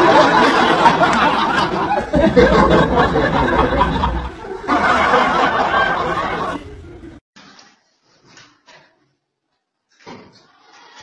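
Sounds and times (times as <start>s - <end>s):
young people laughing: 0.0s - 7.1s
people chattering: 0.0s - 7.2s.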